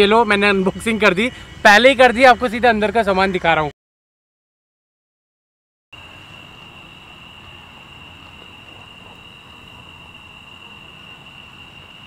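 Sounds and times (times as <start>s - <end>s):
crickets chirring: 0.0s - 3.7s, 5.9s - 12.0s
faint background hiss: 6.0s - 12.0s.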